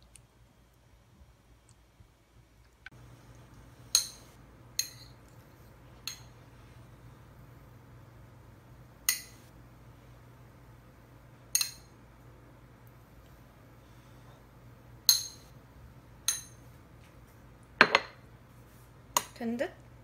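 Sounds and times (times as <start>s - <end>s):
low steady hum: 0.0s - 20.0s
metal spoon clinking bowl: 3.9s - 5.2s, 11.5s - 11.9s, 16.3s - 16.6s.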